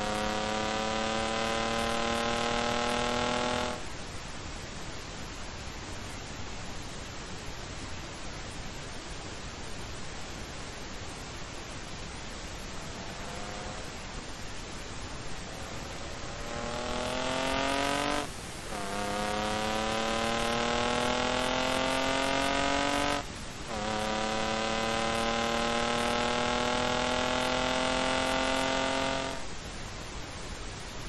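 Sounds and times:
car engine accelerating hard: 0.0 - 3.9, 12.6 - 14.2, 15.3 - 29.5.

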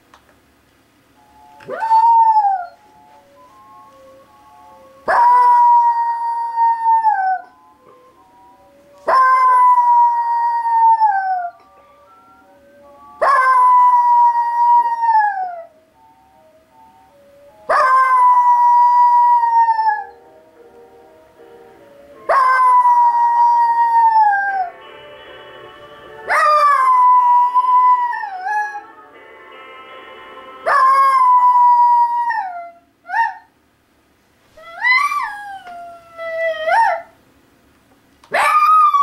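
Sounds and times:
faint music: 0.0 - 39.0
small dog howling: 34.6 - 37.1, 38.3 - 39.0.

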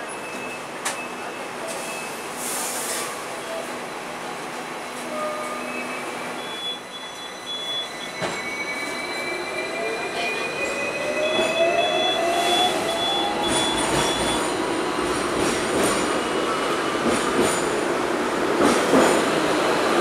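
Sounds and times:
tram rail rolling noise: 0.0 - 20.0
high-pitched wheel squeals: 5.1 - 14.5.

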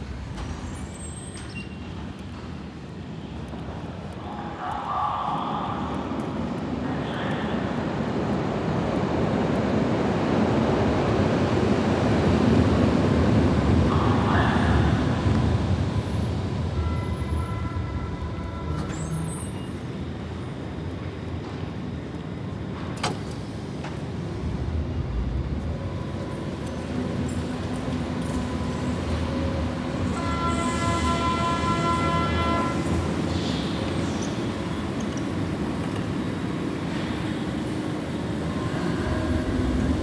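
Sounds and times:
train rumbling into station: 0.0 - 40.0.

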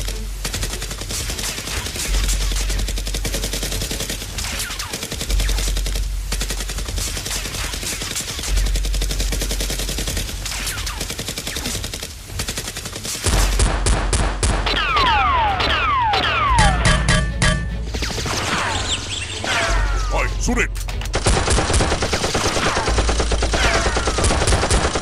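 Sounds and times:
rapid machine-gun fire: 0.0 - 15.2, 21.1 - 25.0.

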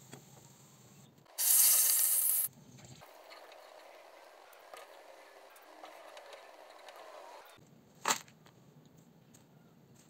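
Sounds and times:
faint frying noise: 1.4 - 2.5
hot oil sizzling in pan: 1.4 - 2.5.

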